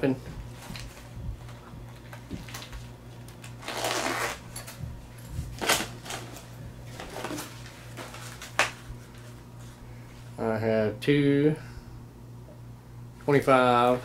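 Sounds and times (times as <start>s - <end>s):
zipper rasp: 3.6s - 4.4s
rustling in nylon backpack: 3.6s - 9.4s.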